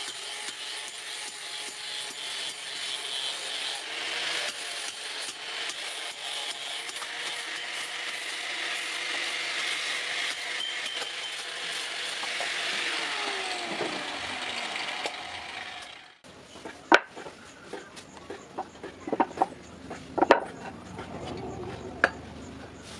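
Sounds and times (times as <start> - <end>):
angle grinder grinding metal: 0.0 - 16.2.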